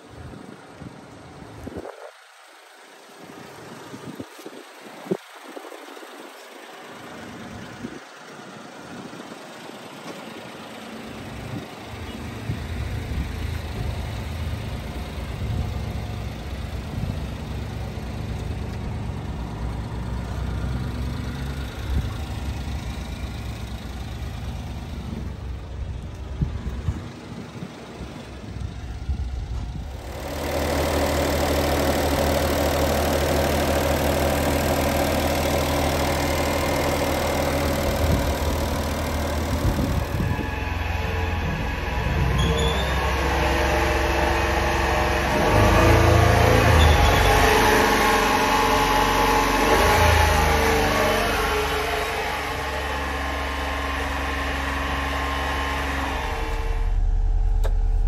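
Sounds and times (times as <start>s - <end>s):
small truck engine idling: 0.0s - 58.0s.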